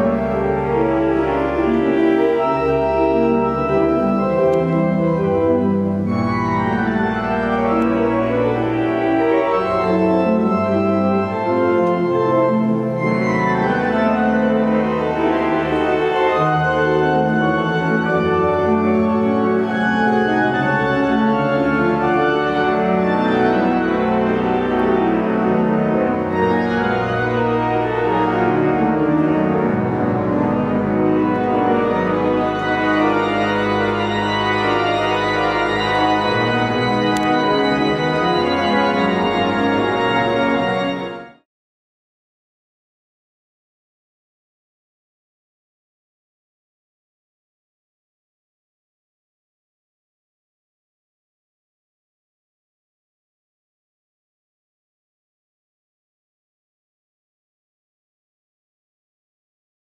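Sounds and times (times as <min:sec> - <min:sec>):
pipe organ playing chords: 0:00.0 - 0:41.4.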